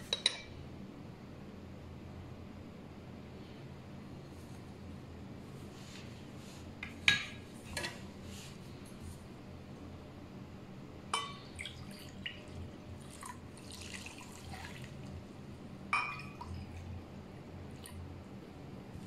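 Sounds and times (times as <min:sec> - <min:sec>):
liquid pouring hiss: 0:13.0 - 0:15.2.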